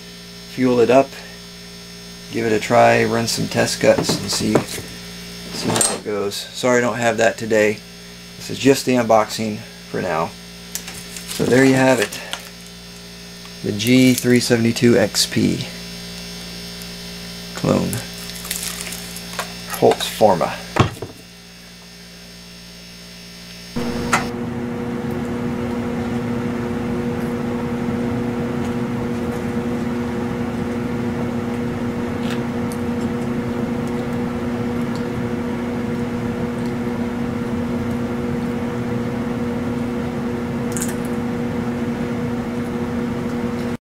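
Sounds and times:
blower fan humming: 0.0 - 43.8.

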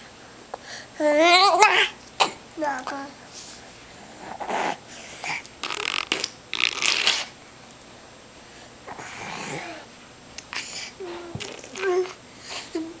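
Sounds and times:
baby blowing raspberries: 4.2 - 7.4.

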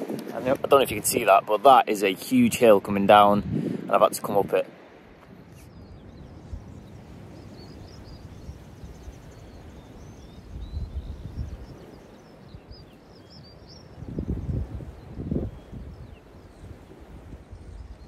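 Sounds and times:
wind rumbling on microphone: 0.0 - 18.0
small birds chirping faintly: 4.3 - 18.0.

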